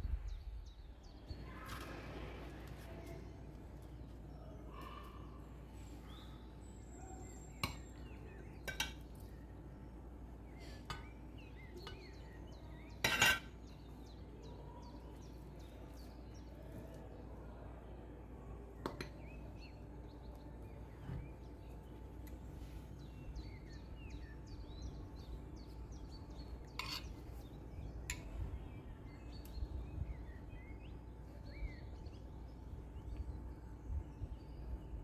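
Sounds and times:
faint bird chirps: 4.1s - 9.5s
metal tongs clinking on plate: 13.0s - 13.5s.

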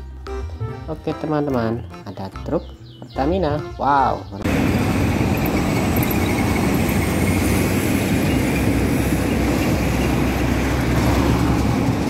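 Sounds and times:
diesel trucks rumbling: 3.2s - 12.0s.

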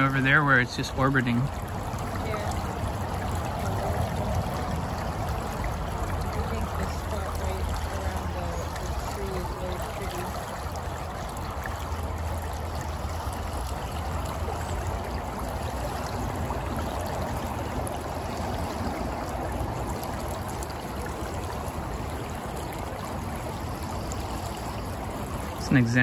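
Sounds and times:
creek water flowing: 0.0s - 26.0s.

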